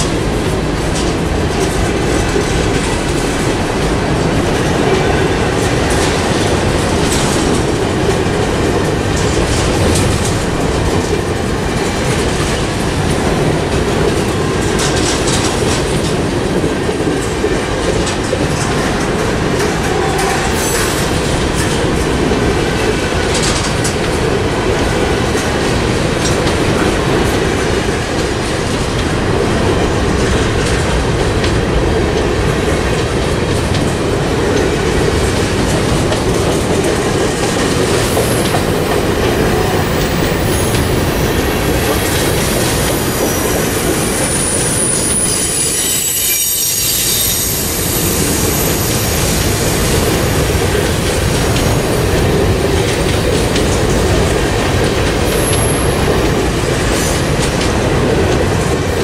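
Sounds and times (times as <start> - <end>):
freight train wheels rumbling: 0.0 - 59.0
high wheel squeal: 38.1 - 49.4, 55.3 - 56.3.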